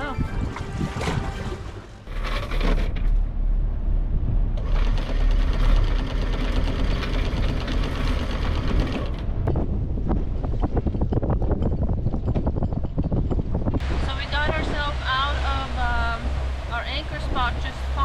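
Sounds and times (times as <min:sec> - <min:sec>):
steady low hum: 0:02.1 - 0:18.0
anchor chain mechanical clatter: 0:04.6 - 0:09.3.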